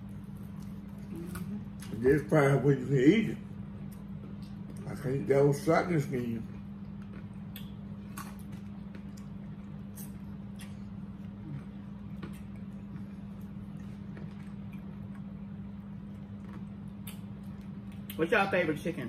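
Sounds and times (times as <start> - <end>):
low hum: 0.0 - 19.0
chewing and mouth smacking: 3.8 - 5.0, 6.4 - 18.2.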